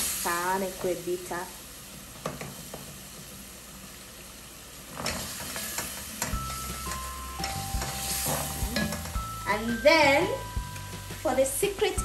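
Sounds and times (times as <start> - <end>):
onions sizzling in a pot: 0.0 - 12.0
background music: 6.3 - 12.0.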